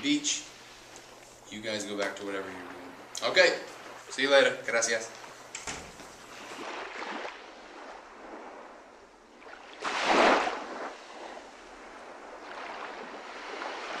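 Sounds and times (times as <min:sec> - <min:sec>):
small waves washing onto beach: 0:00.0 - 0:14.0.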